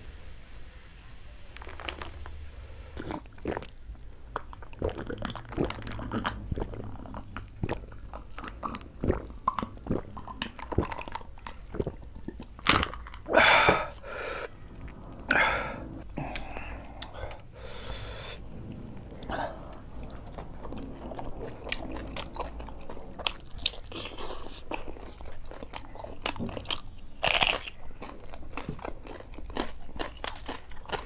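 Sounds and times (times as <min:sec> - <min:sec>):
gulping fizzy drink: 0:03.0 - 0:14.5
wet chewing and swallowing: 0:03.0 - 0:31.0
breathy exhale: 0:13.3 - 0:20.6.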